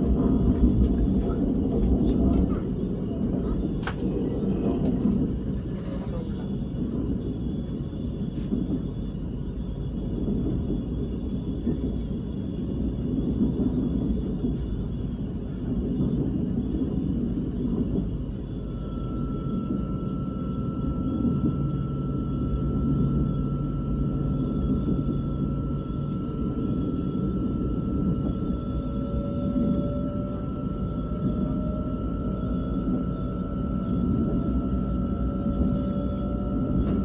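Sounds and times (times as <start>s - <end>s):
train cabin low rumble: 0.0s - 37.0s
thin high whine: 15.5s - 37.0s.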